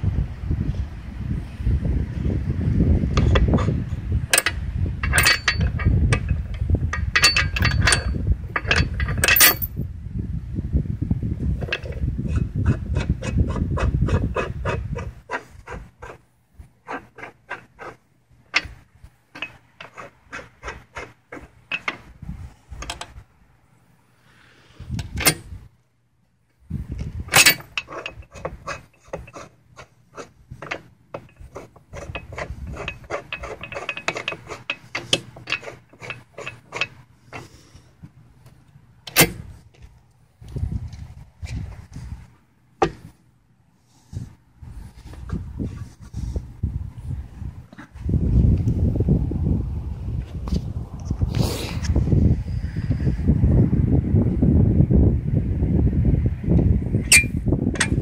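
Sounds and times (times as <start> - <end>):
chain rubbing and clattering: 3.2 - 9.8, 16.8 - 22.0, 27.3 - 37.5.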